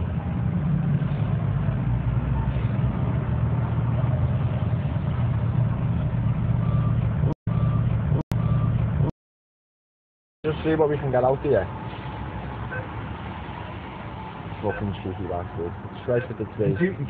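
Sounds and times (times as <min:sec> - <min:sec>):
low engine rumble: 0:00.0 - 0:09.1.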